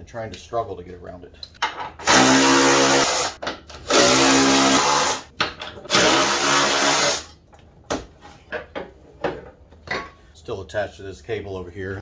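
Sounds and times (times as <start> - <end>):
power tool motor running: 2.0 - 5.2, 5.9 - 7.2.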